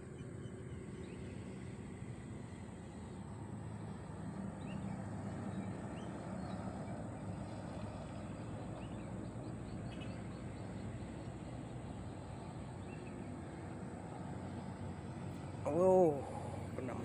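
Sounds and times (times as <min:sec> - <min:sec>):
distant engine drone: 0:00.0 - 0:17.0
bird chirps: 0:08.0 - 0:13.3.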